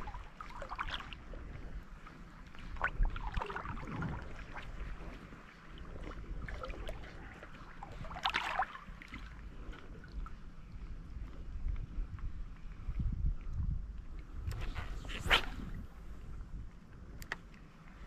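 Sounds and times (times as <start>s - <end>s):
water lapping: 0.0s - 12.9s
wind rumble: 0.0s - 18.0s
water splash: 7.8s - 9.3s.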